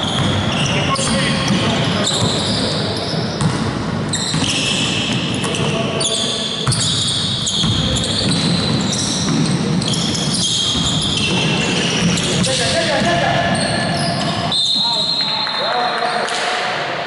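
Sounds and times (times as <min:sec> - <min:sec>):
basketball bouncing on hardwood: 0:00.0 - 0:02.4, 0:03.4 - 0:03.7, 0:06.6 - 0:11.4
sneakers squeaking: 0:00.0 - 0:16.6.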